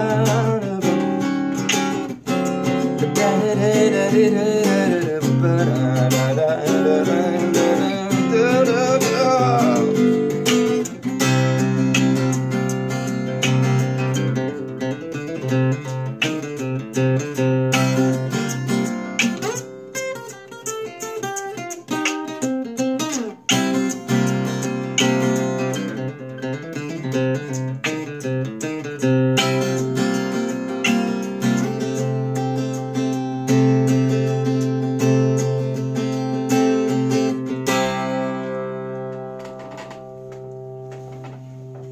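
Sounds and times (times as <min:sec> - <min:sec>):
person singing: 0:00.0 - 0:01.7, 0:02.9 - 0:10.9
acoustic guitar picking and strumming: 0:00.0 - 0:41.9.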